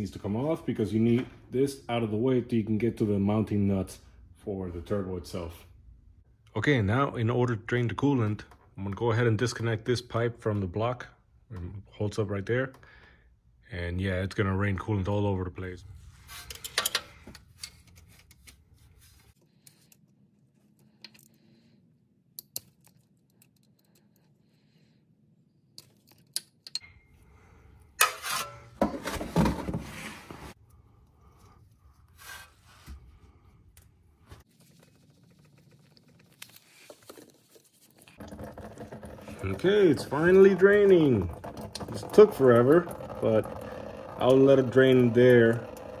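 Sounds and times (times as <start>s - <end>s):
metal rubbing and scraping: 28.0s - 30.6s.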